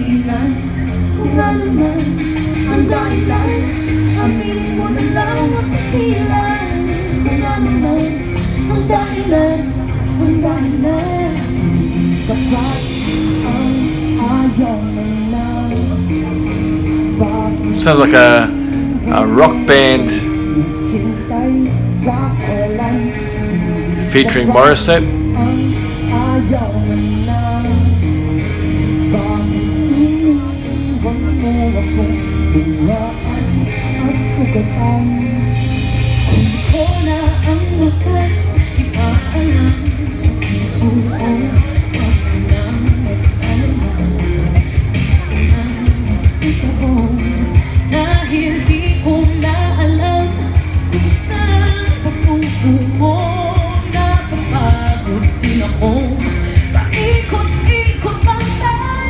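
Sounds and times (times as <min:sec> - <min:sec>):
bass guitar: 0:00.0 - 0:59.0
electric guitar: 0:00.0 - 0:59.0
person singing: 0:00.0 - 0:59.0
rock band playing: 0:00.0 - 0:59.0.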